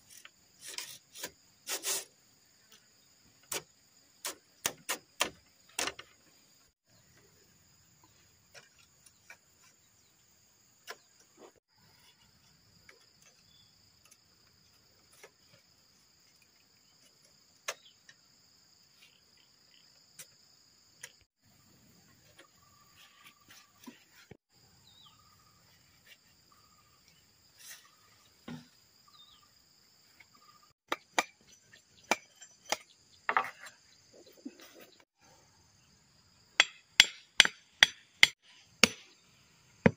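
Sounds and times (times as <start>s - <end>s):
insects droning: 0.0s - 39.9s
bamboo slats clicking and knocking: 2.7s - 6.3s.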